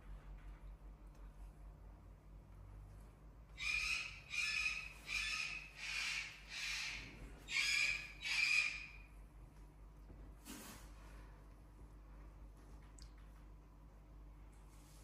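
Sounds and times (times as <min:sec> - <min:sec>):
animal squawking calls: 0:03.6 - 0:09.1.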